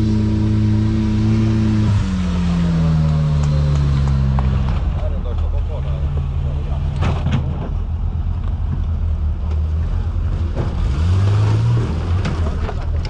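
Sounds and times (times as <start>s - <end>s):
buggy engine revving: 0.0s - 13.0s
engine knocks: 3.0s - 9.6s.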